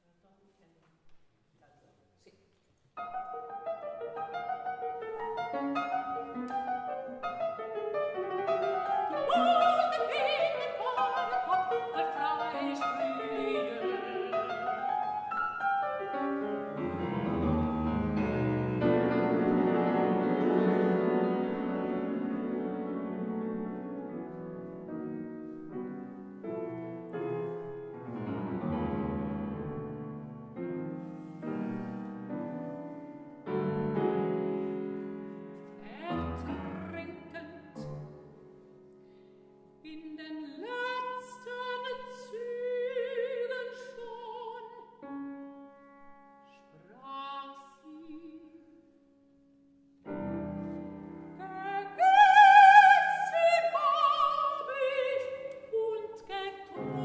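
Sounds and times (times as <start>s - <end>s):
grand piano playing: 3.0s - 39.1s, 49.6s - 55.4s
woman singing with vibrato: 8.8s - 15.1s, 35.8s - 37.9s, 39.9s - 44.9s, 46.8s - 48.8s, 51.4s - 57.0s.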